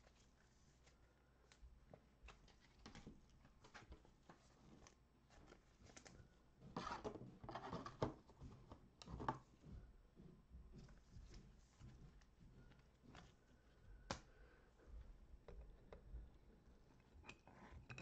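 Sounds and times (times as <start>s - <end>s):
cards rustling and clicking: 0.0s - 9.5s.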